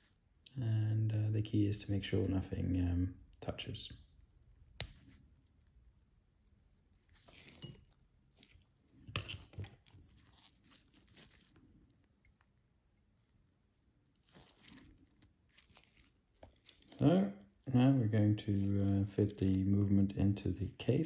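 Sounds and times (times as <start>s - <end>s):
small tools clicking and rustling: 4.4s - 17.6s.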